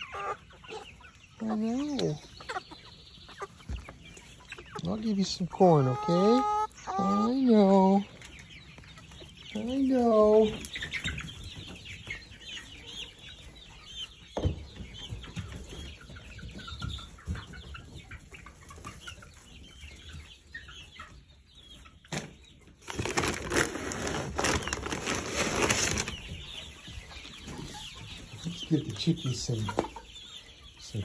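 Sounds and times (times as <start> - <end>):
chickens clucking: 0.0 - 31.0.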